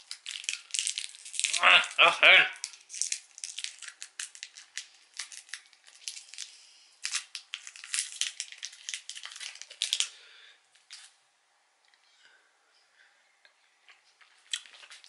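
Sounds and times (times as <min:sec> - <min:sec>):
plastic wrapper crinkling: 0:00.0 - 0:10.2, 0:14.2 - 0:15.0.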